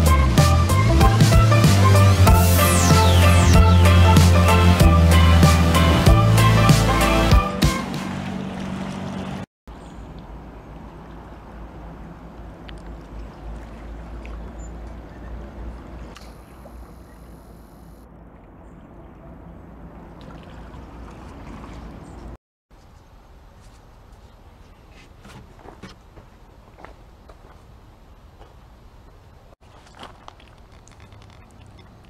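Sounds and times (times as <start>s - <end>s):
water noise: 0.3s - 22.4s, 29.6s - 32.0s.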